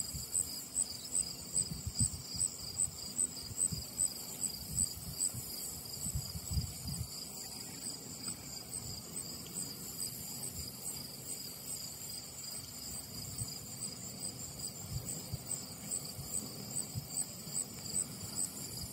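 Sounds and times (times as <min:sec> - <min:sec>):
wind rumbling on microphone: 0:00.0 - 0:11.1, 0:12.7 - 0:18.9
insects chirping: 0:00.0 - 0:18.9.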